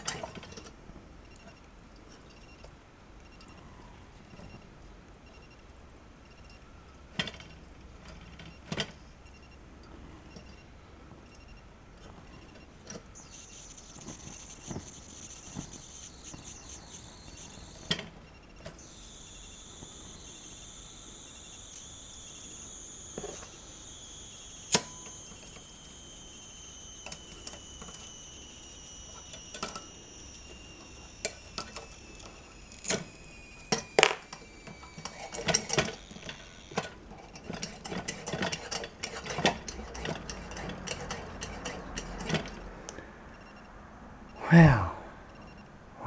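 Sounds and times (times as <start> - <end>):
pressure lantern whistling: 13.1 - 42.6.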